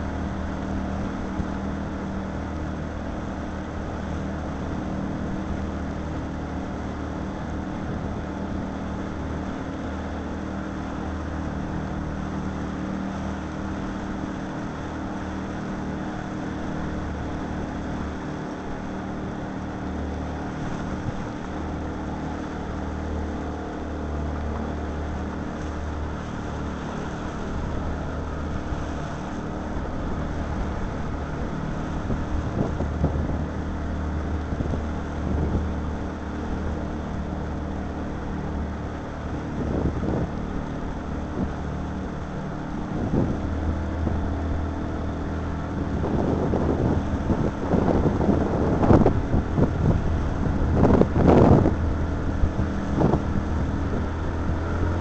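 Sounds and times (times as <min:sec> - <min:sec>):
outboard motor running: 0:00.0 - 0:55.0
water noise: 0:00.0 - 0:55.0
wind: 0:00.0 - 0:55.0.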